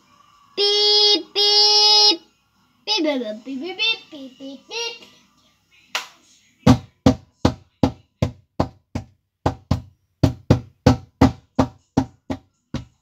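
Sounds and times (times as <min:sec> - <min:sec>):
rapid knocking on a door: 0:06.7 - 0:13.0.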